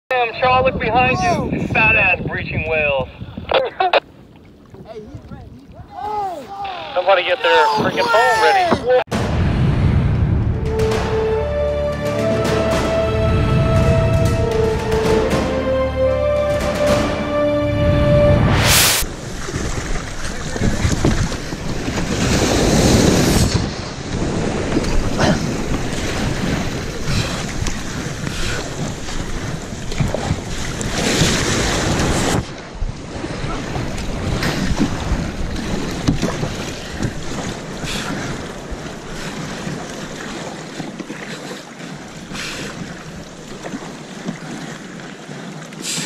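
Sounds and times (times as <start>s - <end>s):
surf rushing and splashing: 0.1s - 46.0s
wind buffeting microphone: 0.2s - 6.5s, 19.0s - 41.0s
water splashing against hull: 0.3s - 46.0s.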